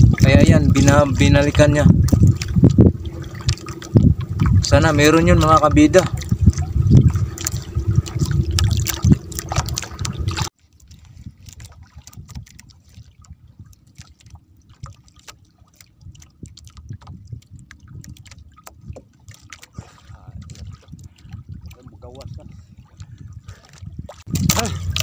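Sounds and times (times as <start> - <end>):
faint low rumble: 0.0 - 10.5
water splashing and sloshing: 0.0 - 25.0.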